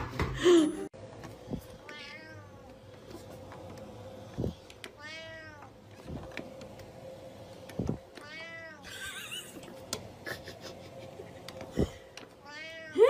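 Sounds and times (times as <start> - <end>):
cat meowing: 1.8 - 2.6, 5.0 - 5.7, 8.2 - 8.9, 12.4 - 13.0.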